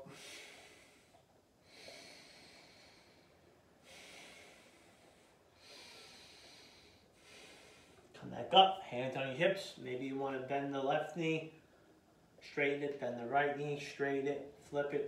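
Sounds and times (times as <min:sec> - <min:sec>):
person breathing slowly: 0:00.0 - 0:08.1.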